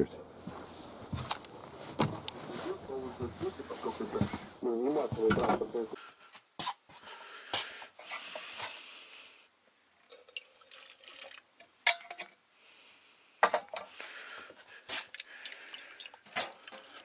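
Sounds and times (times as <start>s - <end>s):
water pouring into glass mug: 10.0s - 11.5s, 15.1s - 17.0s.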